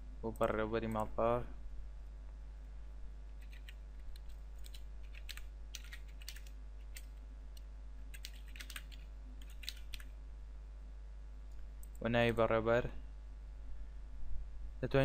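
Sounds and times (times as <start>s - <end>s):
computer keyboard typing: 3.4s - 7.1s, 8.1s - 10.1s.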